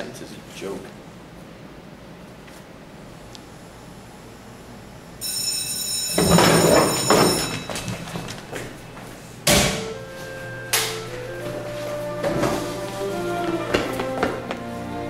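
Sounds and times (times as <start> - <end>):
ringing tone: 5.2 - 8.4
music: 9.7 - 15.0.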